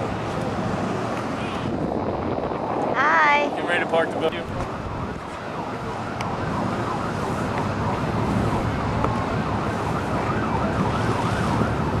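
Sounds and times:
siren yelping: 4.6 - 12.0.

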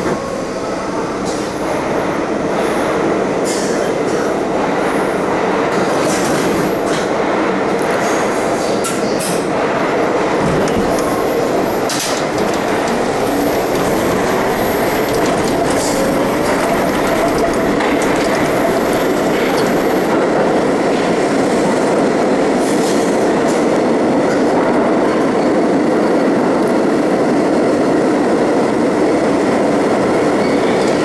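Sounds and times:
subway train running and departing: 0.0 - 31.0
clicks from train car: 11.8 - 19.8.

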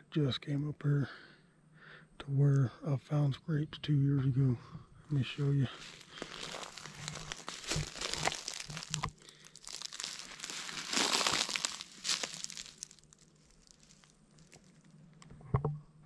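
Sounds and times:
footsteps crunching through dry leaves: 5.4 - 14.9.

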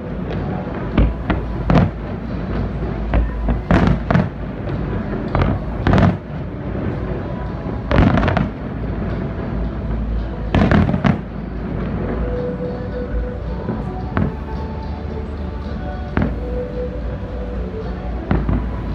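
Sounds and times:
fireworks bangs: 0.0 - 9.6, 10.5 - 12.5, 18.2 - 18.9
steady low rumble: 0.0 - 18.9.

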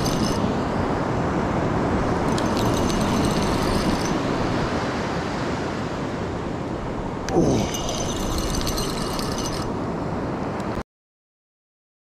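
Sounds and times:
fishing reel whirring: 0.0 - 0.4, 2.3 - 4.2, 7.7 - 9.7.

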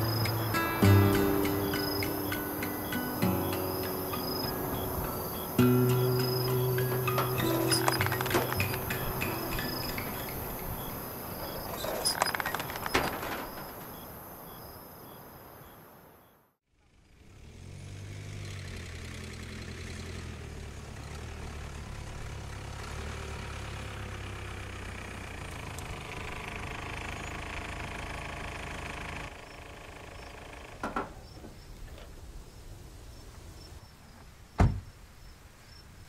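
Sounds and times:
car engine humming: 0.0 - 14.7, 17.1 - 30.8
sharp clicks: 6.2 - 10.6, 11.8 - 13.9.

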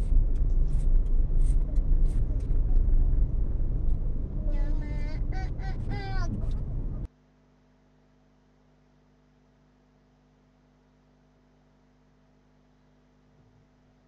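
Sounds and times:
traffic rumble inside car: 0.0 - 7.1
faint steady hum: 0.0 - 14.0
person speaking wavering voice: 4.4 - 6.9.

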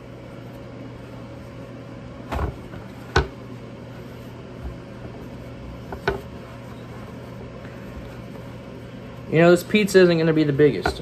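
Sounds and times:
dough thumping on counter: 2.2 - 3.4, 5.8 - 6.4, 10.8 - 11.0.

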